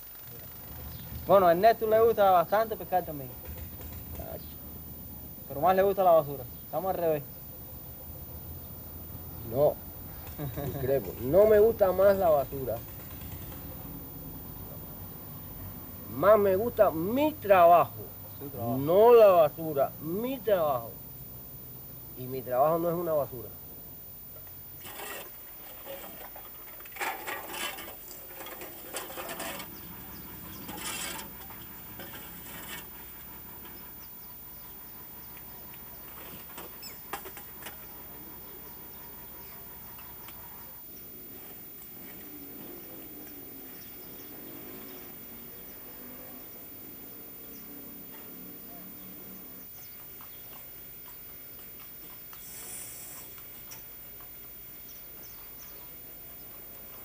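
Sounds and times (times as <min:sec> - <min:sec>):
steady hiss: 0:00.0 - 0:57.0
shovel scraping along pavement: 0:24.8 - 0:33.1
hooves and cart wheels clopping: 0:49.4 - 0:52.6, 0:53.2 - 0:57.0.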